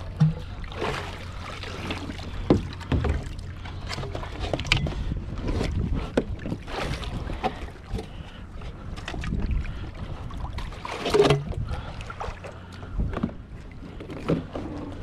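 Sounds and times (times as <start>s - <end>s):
water lapping against plastic hull: 0.0s - 15.0s
wind rumble on microphone: 3.9s - 15.0s.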